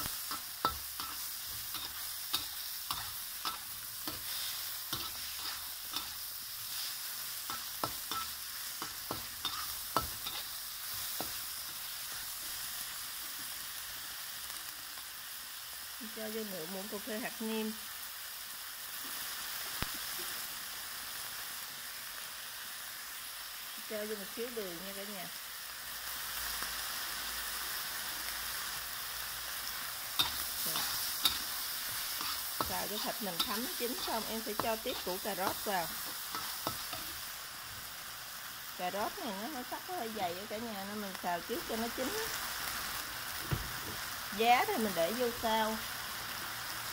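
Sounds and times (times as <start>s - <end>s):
metal spatula scraping wok: 0.0s - 12.2s, 30.2s - 37.3s
meat sizzling in hot oil: 0.0s - 46.9s.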